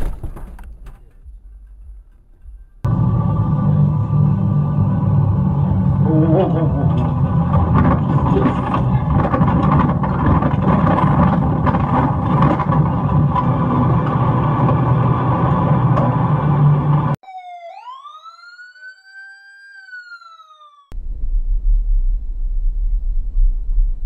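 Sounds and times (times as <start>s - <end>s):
synthesized siren-like tone: 2.8s - 9.8s, 13.5s - 21.0s.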